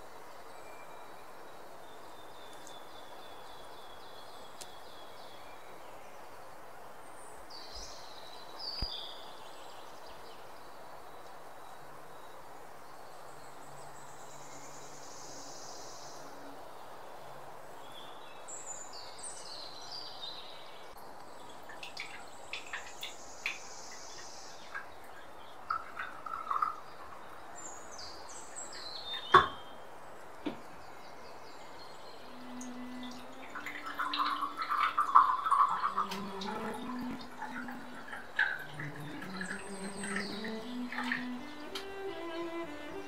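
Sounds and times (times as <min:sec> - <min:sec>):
small birds chirping: 0:00.0 - 0:43.0
high bird trills: 0:32.2 - 0:43.0.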